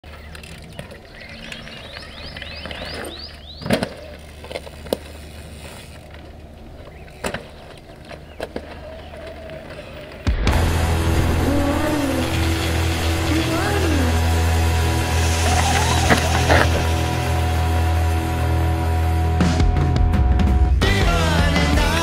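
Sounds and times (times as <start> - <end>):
tyres crunching on gravel: 0.0 - 17.4
wheels knocking down: 0.1 - 18.0
loud music: 10.3 - 22.0.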